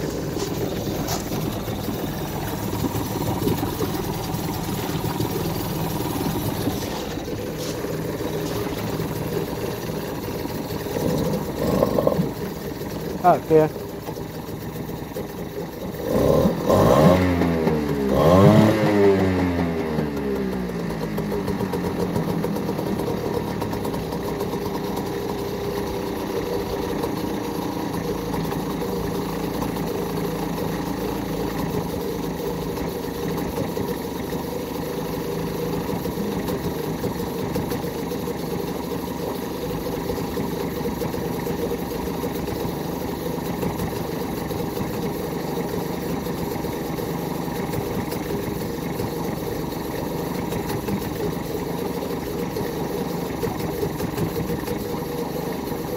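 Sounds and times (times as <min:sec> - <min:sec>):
outboard motor running: 0:00.0 - 0:55.9.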